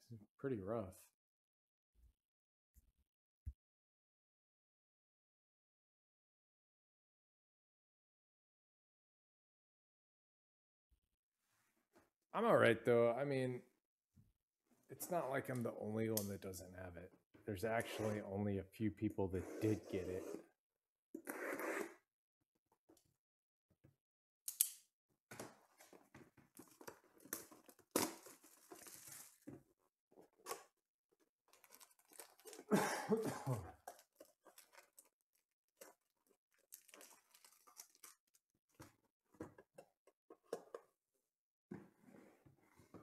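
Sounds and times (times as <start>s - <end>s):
foil packs crinkling and tearing: 26.6s - 29.6s, 31.5s - 32.9s, 33.8s - 35.2s, 35.8s - 38.4s.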